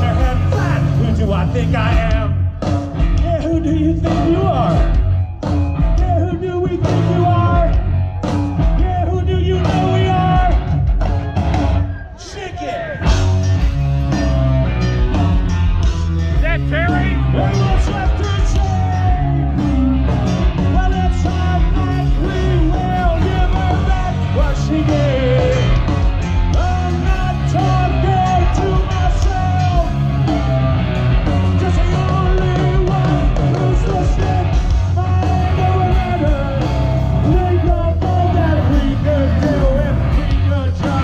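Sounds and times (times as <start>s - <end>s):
rock band playing live: 0.0s - 41.0s
person singing: 16.4s - 19.9s, 20.6s - 30.8s, 31.4s - 41.0s.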